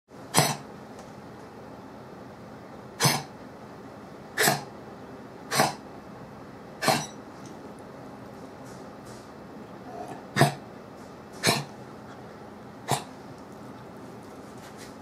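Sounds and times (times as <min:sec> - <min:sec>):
dog coughing: 0:00.3 - 0:00.7, 0:03.0 - 0:03.4, 0:04.4 - 0:04.7, 0:05.5 - 0:05.9, 0:06.8 - 0:07.2, 0:10.1 - 0:10.7, 0:11.4 - 0:11.8, 0:12.8 - 0:13.2.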